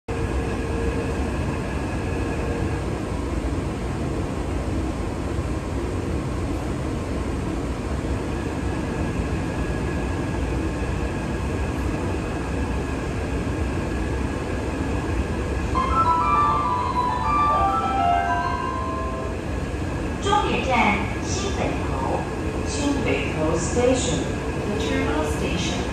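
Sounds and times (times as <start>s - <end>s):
chime melody: 15.7s - 19.6s.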